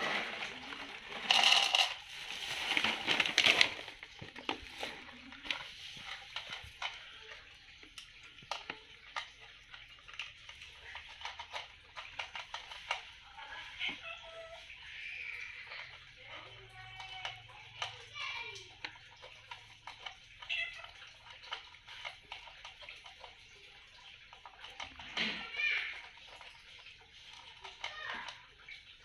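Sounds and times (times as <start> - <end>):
kibble poured into plastic bowl: 0.0 - 6.8
plastic bag rustling: 0.0 - 7.1
cat crunching dry kibble: 0.0 - 13.1.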